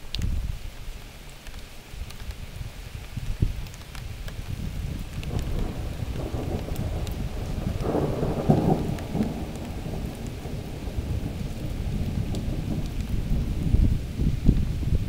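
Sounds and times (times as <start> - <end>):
steady rain: 0.0 - 15.0
thunder rumbling: 4.6 - 15.0.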